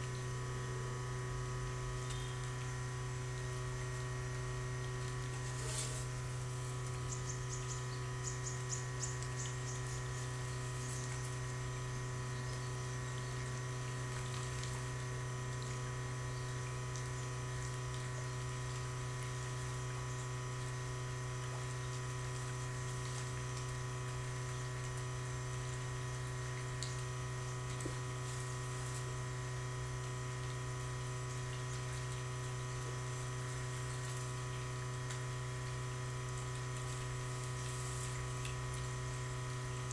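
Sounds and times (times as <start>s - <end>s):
machine humming with high tones: 0.0s - 39.9s
faint high ticks: 7.0s - 10.3s.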